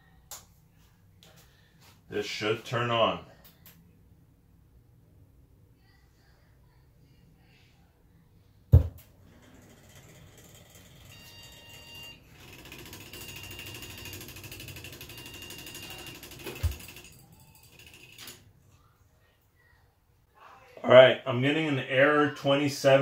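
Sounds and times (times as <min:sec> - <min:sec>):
computer fans whirring: 0:09.1 - 0:18.5.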